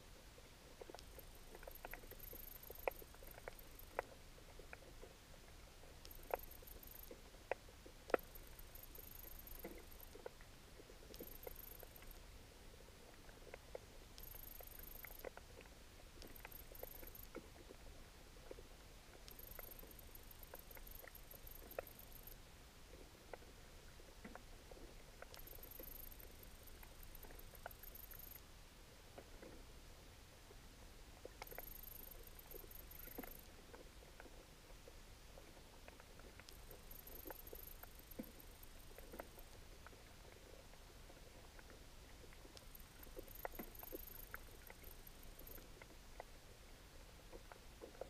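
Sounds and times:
low steady hiss: 0.0s - 48.0s
sharp underwater clicks: 0.8s - 5.2s, 5.9s - 12.3s, 13.1s - 17.8s, 18.4s - 22.4s, 25.2s - 28.4s, 31.2s - 34.4s, 35.4s - 40.5s, 41.5s - 46.3s
rapid high-pitched ticking: 1.0s - 4.1s, 6.0s - 7.2s, 8.2s - 10.2s, 11.1s - 12.2s, 14.2s - 15.3s, 16.2s - 17.3s, 19.3s - 22.4s, 25.3s - 28.4s, 31.4s - 33.4s, 36.5s - 39.5s, 42.6s - 45.7s.

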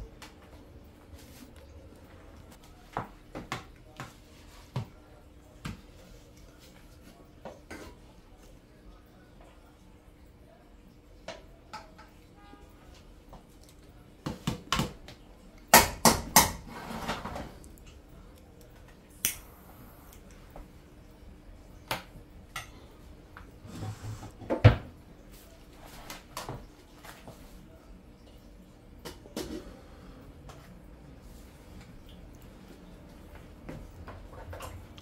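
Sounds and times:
faint steady hum: 0.0s - 35.0s.

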